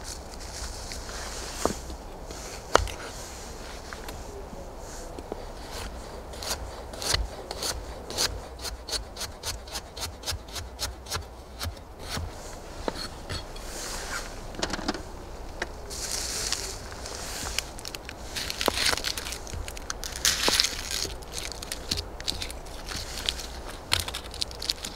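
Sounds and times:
rustling scrape on board: 12.1s - 14.4s, 15.9s - 20.8s.

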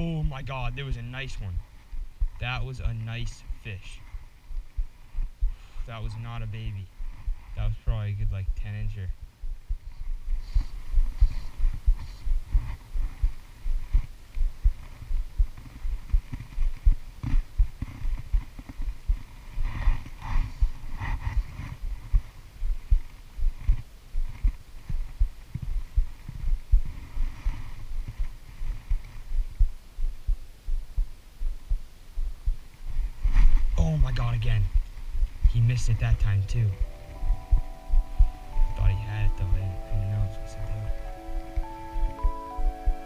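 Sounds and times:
low thumps and rumble: 4.5s - 5.6s, 6.4s - 36.4s.

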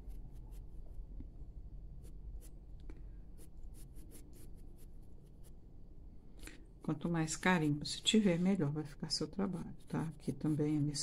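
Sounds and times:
pencil scratching on paper: 3.4s - 5.6s, 9.1s - 11.0s.

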